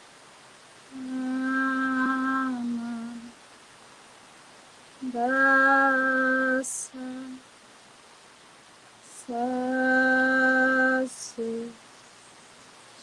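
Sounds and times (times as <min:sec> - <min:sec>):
woman singing wordless note: 0:00.9 - 0:03.3, 0:05.0 - 0:07.4, 0:09.2 - 0:11.8.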